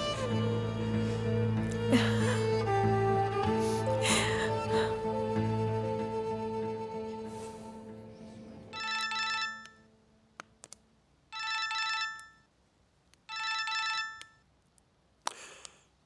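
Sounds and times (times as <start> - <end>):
background music: 0.0 - 10.7
phone ringtone trilling: 8.7 - 9.8, 11.4 - 12.4, 13.3 - 14.4.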